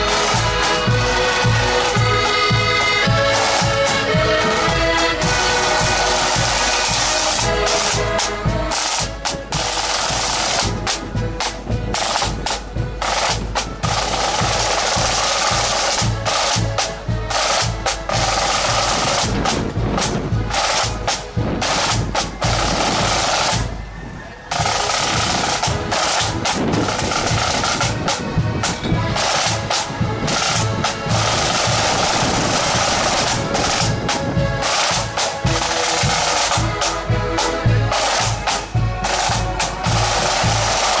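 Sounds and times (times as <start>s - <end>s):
bass drum: 0.0s - 23.8s
snare drums rolling beat: 0.0s - 41.0s.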